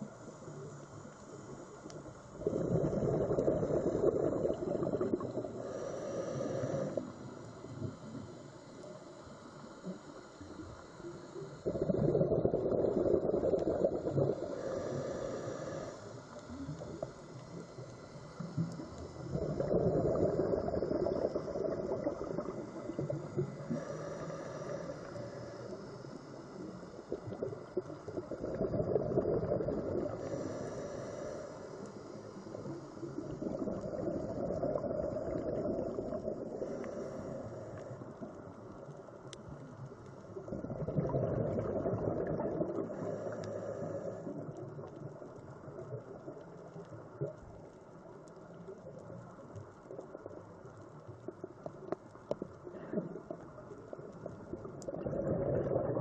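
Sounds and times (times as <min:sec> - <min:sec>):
bubbling exhalations underwater: 0:02.4 - 0:05.5, 0:11.6 - 0:14.6, 0:19.3 - 0:23.1, 0:27.2 - 0:30.2, 0:33.2 - 0:36.6, 0:40.5 - 0:43.1, 0:54.5 - 0:56.0
regulator inhalation hiss: 0:04.9 - 0:11.6, 0:14.1 - 0:19.3, 0:20.6 - 0:27.2, 0:30.0 - 0:33.3.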